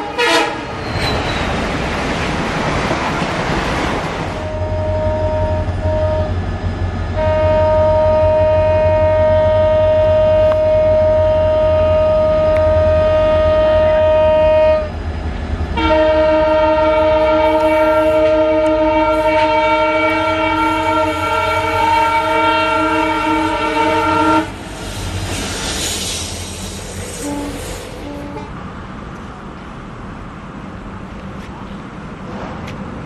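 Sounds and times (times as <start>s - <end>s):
locomotive horn blasts: 0.0s - 0.7s, 4.4s - 6.4s, 7.1s - 14.9s, 15.8s - 24.6s, 27.1s - 28.6s
train rumbling: 0.0s - 33.0s.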